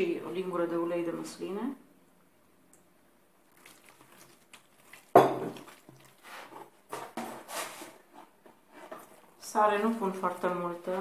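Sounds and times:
clatter and rustling in bowl: 3.6 - 9.3.

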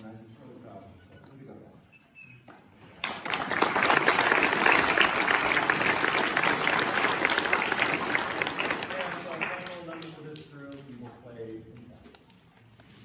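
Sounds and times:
audience applause: 3.0 - 10.4.

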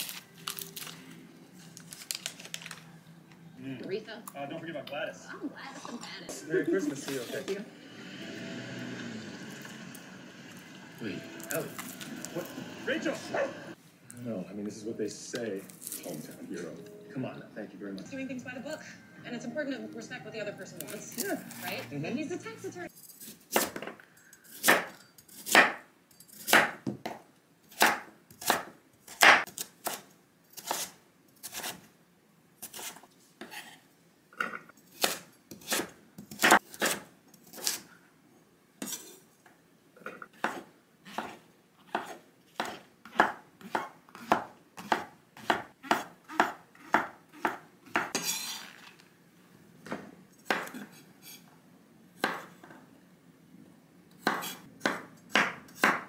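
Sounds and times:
knife chopping on wooden board: 24.6 - 25.8, 26.5 - 27.2, 27.8 - 30.0, 40.4 - 48.3, 49.9 - 50.9, 52.2 - 52.5, 54.2 - 56.0.

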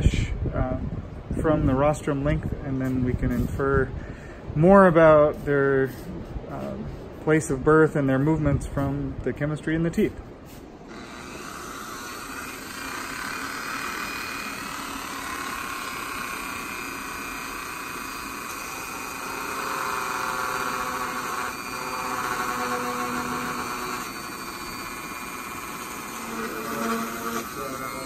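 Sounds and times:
rotary tool whirring: 10.5 - 28.0.

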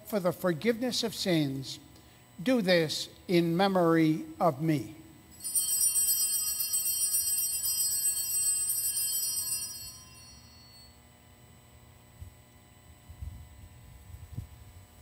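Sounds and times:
altar bells jingling: 5.3 - 11.0.

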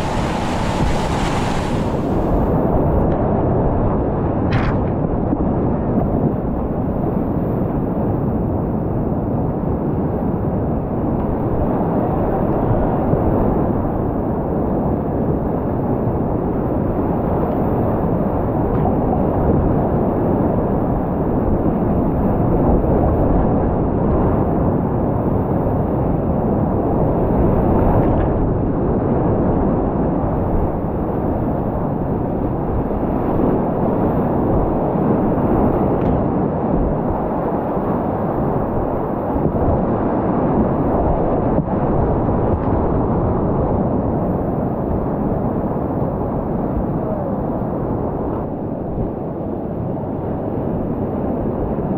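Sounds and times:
whitewater rapids rushing: 0.0 - 2.8.

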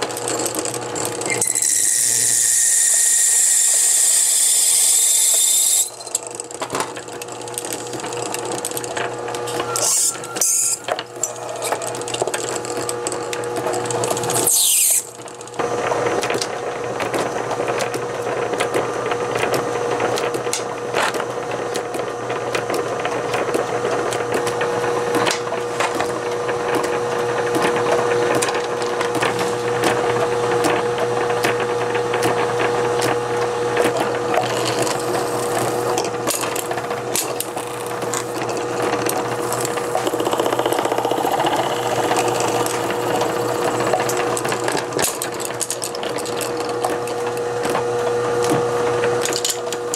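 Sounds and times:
tool scraping: 9.5 - 12.1, 33.8 - 46.0
lathe motor humming: 33.2 - 47.6.

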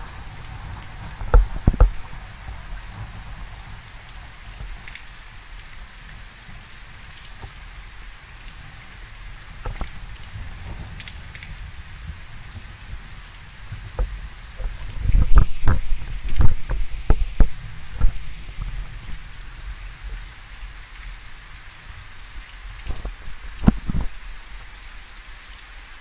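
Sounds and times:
steady rain: 0.0 - 26.0.

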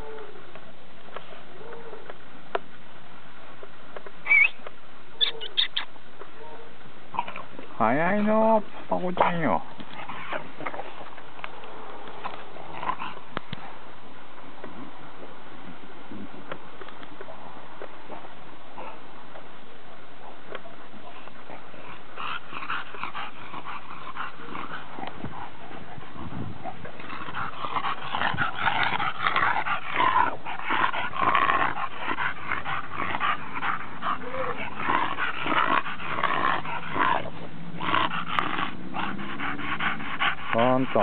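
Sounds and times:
dogs growling: 12.2 - 13.4, 21.4 - 41.0.

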